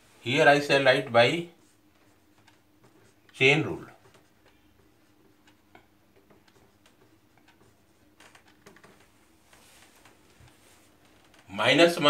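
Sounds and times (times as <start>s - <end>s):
marker writing on whiteboard: 1.0s - 9.8s.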